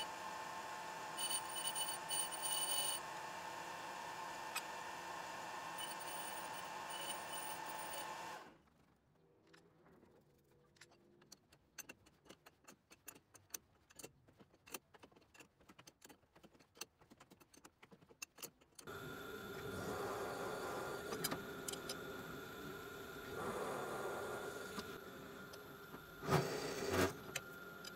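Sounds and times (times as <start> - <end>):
drill press drilling steel: 0.0 - 8.4
metal lathe humming: 0.0 - 8.4, 18.9 - 26.2.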